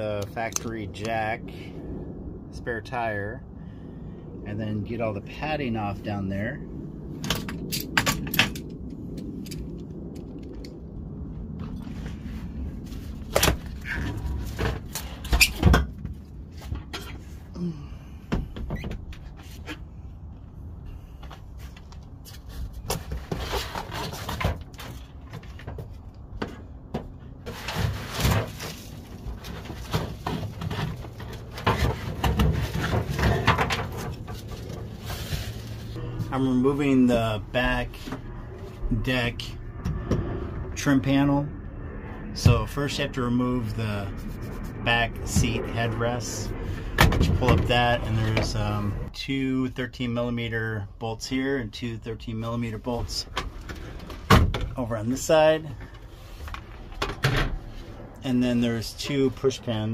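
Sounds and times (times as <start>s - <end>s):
rustling: 27.4s - 36.0s.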